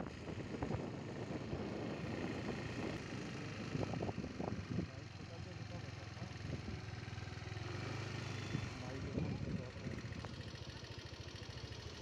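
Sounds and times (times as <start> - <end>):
wind buffeting microphone: 0.0 - 4.9
motor scooter running: 0.0 - 12.0.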